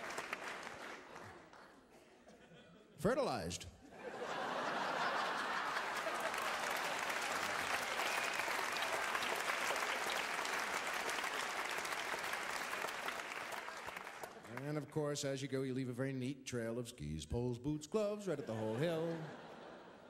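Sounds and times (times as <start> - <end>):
audience applauding: 0.0 - 1.8, 4.6 - 14.9.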